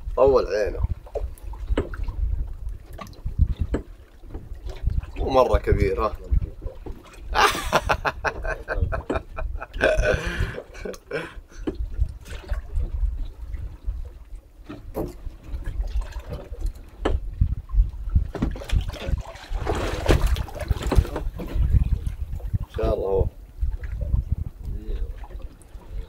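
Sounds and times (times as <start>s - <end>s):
water lapping against boat hull: 0.0s - 26.0s
rushing water splash: 18.4s - 22.8s.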